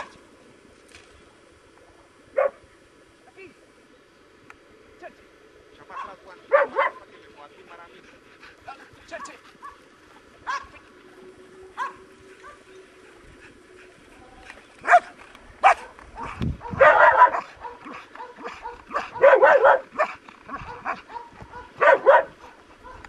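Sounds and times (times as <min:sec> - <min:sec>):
dog barking: 0:02.4 - 0:02.6, 0:05.9 - 0:07.1, 0:09.2 - 0:09.8, 0:10.5 - 0:10.7, 0:11.8 - 0:12.6, 0:14.8 - 0:23.0.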